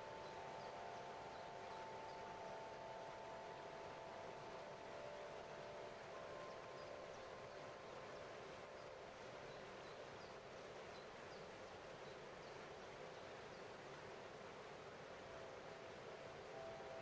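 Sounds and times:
water cascading over rocks: 0.0s - 17.0s.

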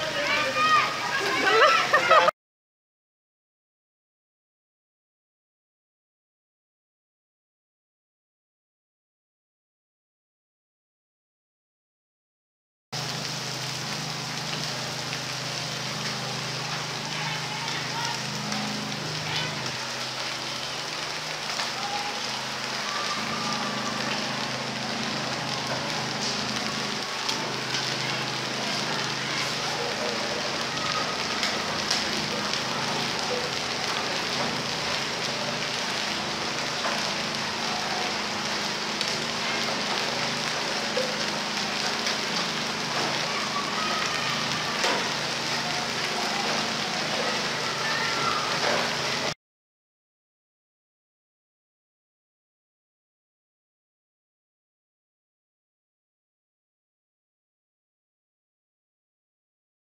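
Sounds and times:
heavy rain on flooded roof: 0.0s - 2.4s, 13.0s - 49.4s.

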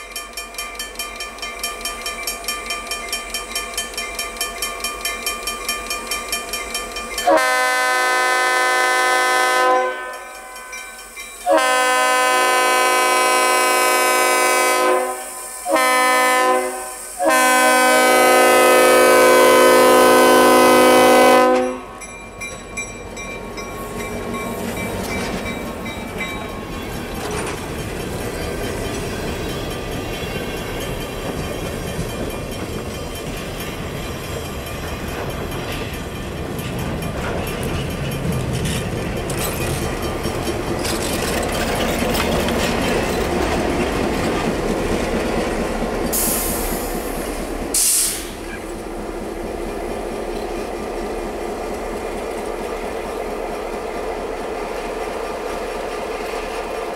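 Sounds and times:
freight train rolling by: 0.0s - 56.9s
diesel locomotive rumble: 17.2s - 56.9s
wheels knocking over rail joints: 34.5s - 45.7s.

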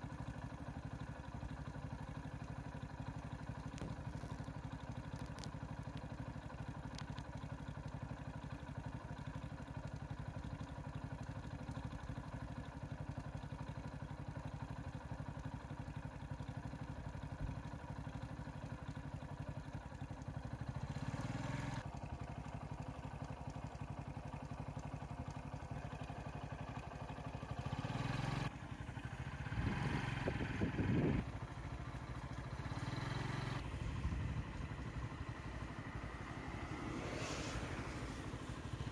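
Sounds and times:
vehicle engine idling: 0.0s - 38.9s
car approaching: 1.8s - 11.0s, 19.9s - 38.9s
motorcycle riding past: 20.8s - 21.9s, 27.5s - 38.9s.

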